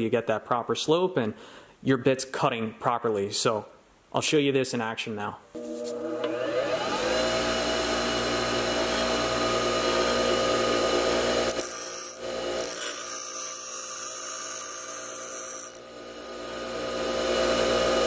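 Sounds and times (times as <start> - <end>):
bench grinder motor humming: 5.6 - 18.0
drill bit grinding hiss: 11.4 - 15.8.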